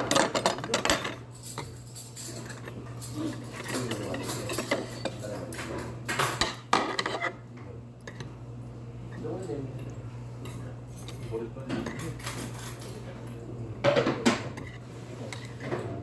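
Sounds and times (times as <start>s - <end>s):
metal chopsticks clinking on pots: 0.0s - 7.2s.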